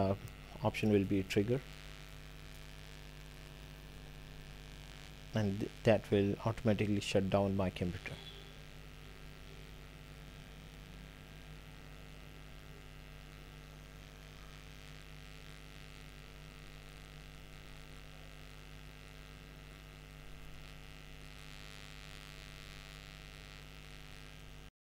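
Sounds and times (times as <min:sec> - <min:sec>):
electrical mains hum: 0:00.0 - 0:24.7
faint hiss: 0:05.3 - 0:08.7.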